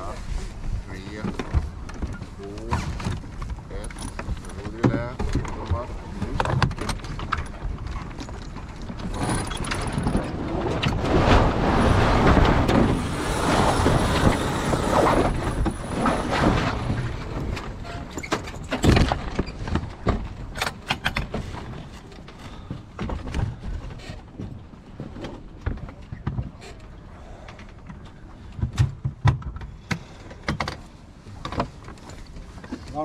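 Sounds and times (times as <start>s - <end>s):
sails flapping: 0.0s - 33.0s
rigging rattling: 1.2s - 21.8s.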